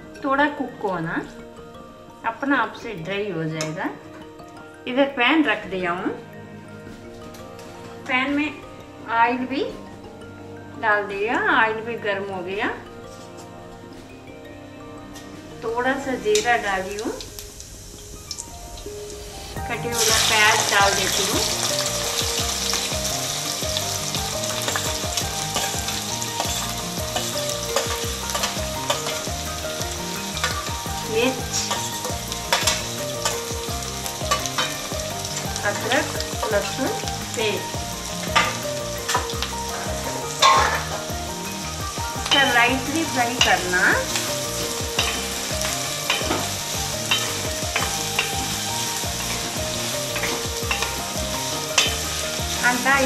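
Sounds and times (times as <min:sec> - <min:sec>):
onions sizzling in oil: 0:15.2 - 0:53.0.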